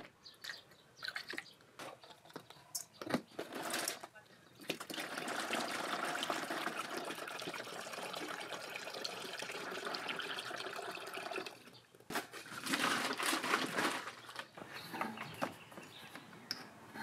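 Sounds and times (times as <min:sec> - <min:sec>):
liquid pouring into container: 0:04.7 - 0:11.7.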